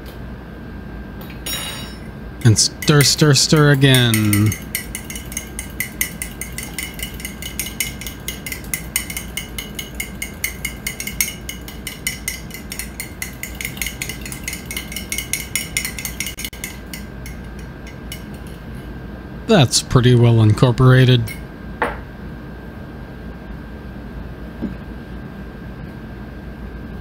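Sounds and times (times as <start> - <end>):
spoon clinking against mug: 1.5 - 18.6.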